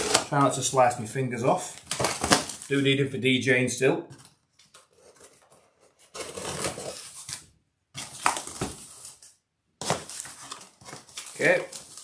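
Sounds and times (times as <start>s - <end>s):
knife slicing cardboard box: 0.0s - 0.3s, 6.1s - 7.1s
cardboard scraping and rustling: 0.0s - 0.6s, 4.8s - 12.0s.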